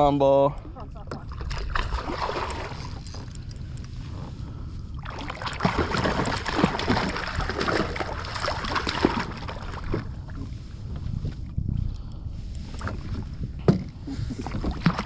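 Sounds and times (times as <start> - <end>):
steady low rumble: 0.0 - 14.8
fish thrashing and splashing: 1.3 - 3.9, 5.0 - 10.3, 14.4 - 15.0.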